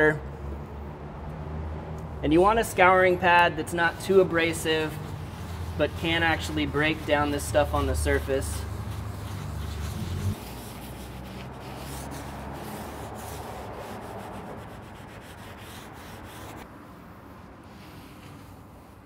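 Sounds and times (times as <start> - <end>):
cloth wiping: 3.8 - 16.7, 17.5 - 19.0.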